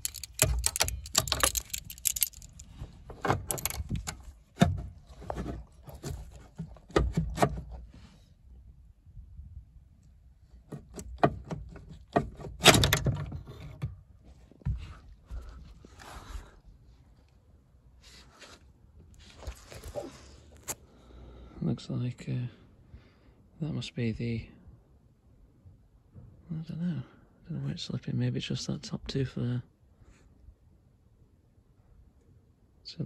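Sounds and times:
metal clicks and clinks: 0.0 - 2.7, 3.3 - 4.2.

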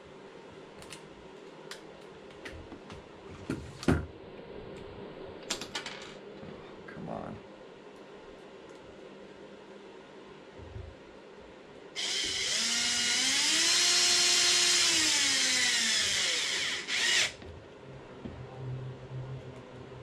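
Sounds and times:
power driver motor whine: 12.0 - 17.4.

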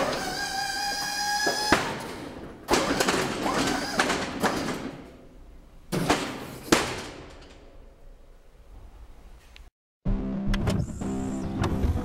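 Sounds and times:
hydraulic pump running: 0.0 - 5.1.

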